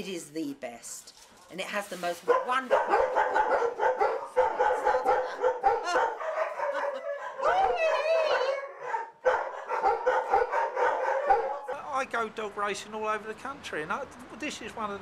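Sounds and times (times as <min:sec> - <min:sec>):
dogs barking: 0:02.2 - 0:11.8
dog howling: 0:02.8 - 0:11.8.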